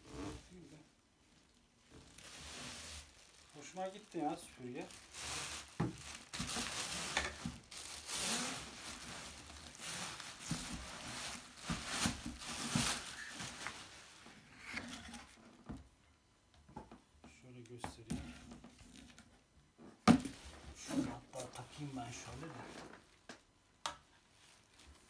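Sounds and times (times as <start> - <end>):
bubble wrap crinkling: 0.4 - 15.4, 24.3 - 25.0.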